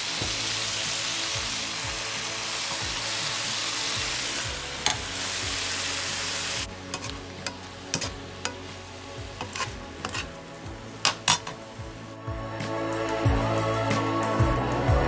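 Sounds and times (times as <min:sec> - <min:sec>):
shrimp sizzling in hot pan: 0:00.0 - 0:12.2
metal spatula scraping pan: 0:04.8 - 0:05.3, 0:06.8 - 0:11.8.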